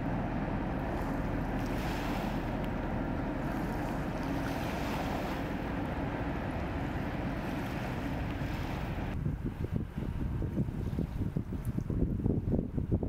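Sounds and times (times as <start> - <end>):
boat diesel engine drone: 0.0 - 13.0
wake and propeller wash rushing: 0.0 - 13.0
wind on microphone: 0.8 - 13.0.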